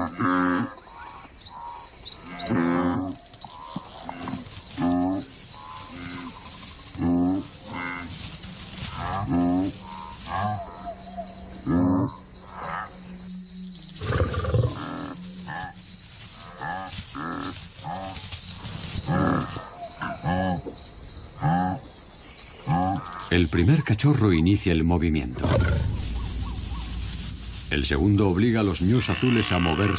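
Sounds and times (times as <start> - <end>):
high-pitched insect drone: 0.0 - 23.3, 25.0 - 29.9
wildebeest grunting: 2.2 - 8.2, 28.9 - 29.9.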